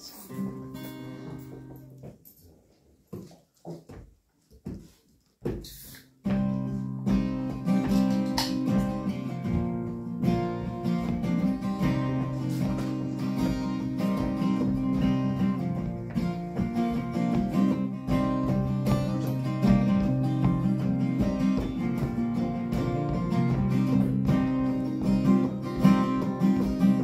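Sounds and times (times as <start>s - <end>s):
acoustic guitars strumming: 0.0s - 2.1s, 6.2s - 27.0s
banjo picking: 7.1s - 27.0s.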